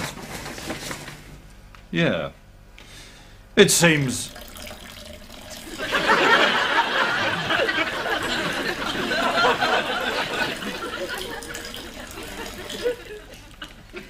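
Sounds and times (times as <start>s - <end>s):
studio audience laughing: 5.7s - 14.0s.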